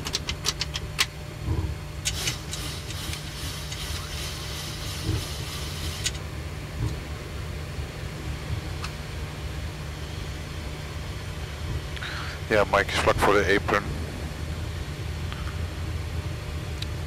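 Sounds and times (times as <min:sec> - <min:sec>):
jet engines idling: 0:00.0 - 0:17.0
hiss: 0:02.1 - 0:06.2.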